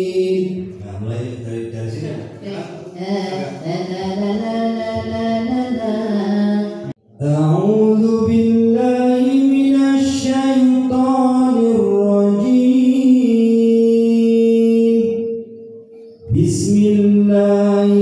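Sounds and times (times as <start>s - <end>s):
man reciting melodically: 0.0s - 3.7s, 6.8s - 15.3s, 16.2s - 18.0s.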